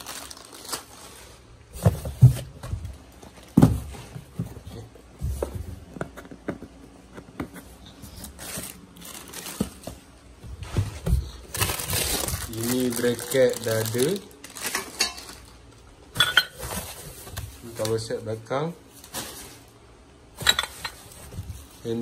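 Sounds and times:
plastic crinkling: 0.0 - 1.7, 8.1 - 15.8.

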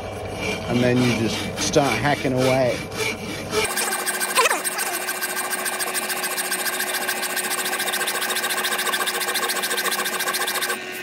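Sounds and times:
hacksaw rasping on steel: 0.3 - 10.8
drill press motor hum: 3.0 - 11.0.

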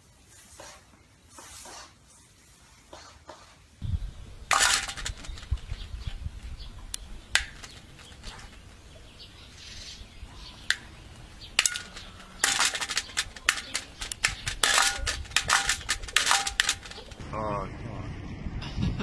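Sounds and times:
beak pecking metal bowl: 4.4 - 9.2, 10.4 - 17.2.

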